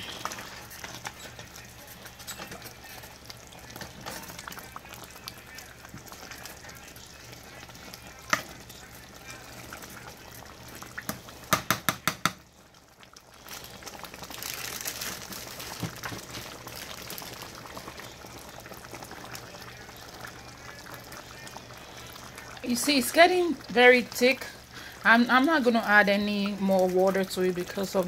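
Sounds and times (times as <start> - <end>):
soup bubbling in a pot: 0.0 - 28.0.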